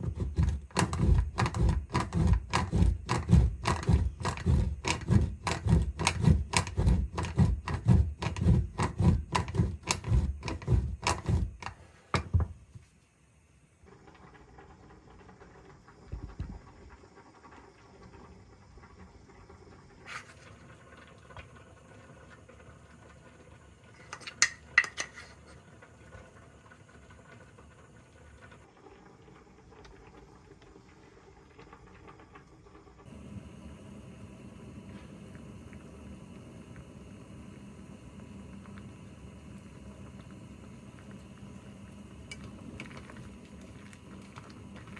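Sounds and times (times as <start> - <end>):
cheese scraping on a grater: 0.0 - 11.7.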